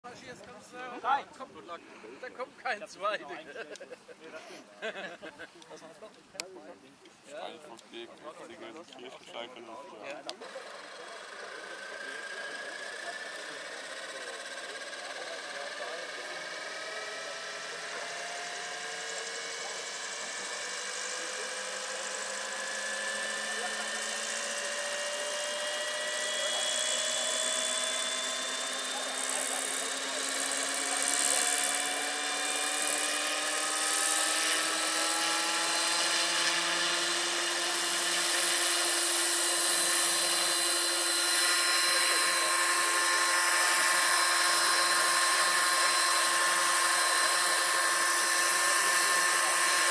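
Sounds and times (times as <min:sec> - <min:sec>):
model helicopter motor whine: 0:07.4 - 0:49.9
helicopter rotor noise: 0:10.1 - 0:49.9.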